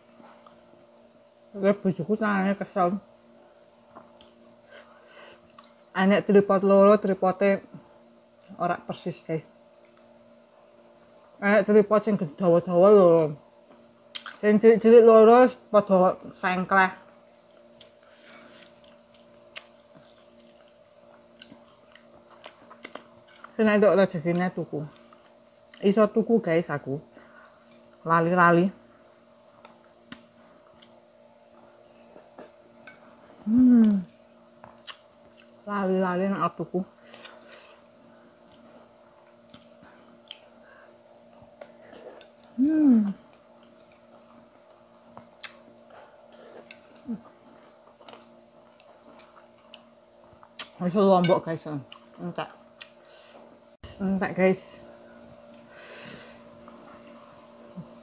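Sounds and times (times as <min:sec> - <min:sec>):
faint low hum: 0:00.0 - 0:58.0
person chewing food: 0:05.3 - 0:05.8, 0:14.1 - 0:14.4, 0:17.0 - 0:23.6, 0:24.8 - 0:25.8, 0:29.5 - 0:33.1, 0:33.8 - 0:35.6, 0:37.1 - 0:37.8, 0:38.4 - 0:40.6, 0:41.3 - 0:42.6, 0:43.2 - 0:50.8, 0:51.9 - 0:53.1, 0:55.4 - 0:55.8
woman humming: 0:33.4 - 0:34.2, 0:42.5 - 0:43.3, 0:47.0 - 0:47.3.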